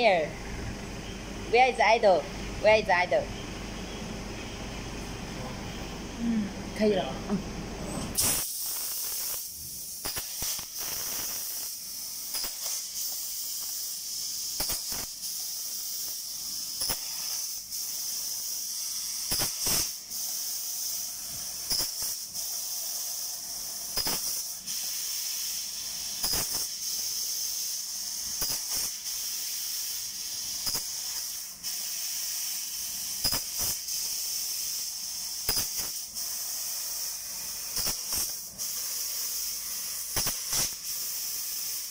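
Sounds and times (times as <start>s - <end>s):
gas jet hissing: 7.9s - 41.9s
sparks clicking and popping: 8.2s - 13.9s, 14.5s - 16.2s, 16.8s - 17.6s, 19.3s - 20.0s, 21.7s - 22.3s, 23.9s - 24.5s, 26.2s - 26.8s, 28.4s - 29.1s, 30.6s - 31.2s, 33.2s - 34.2s, 35.4s - 36.1s, 37.7s - 38.5s, 40.1s - 41.0s.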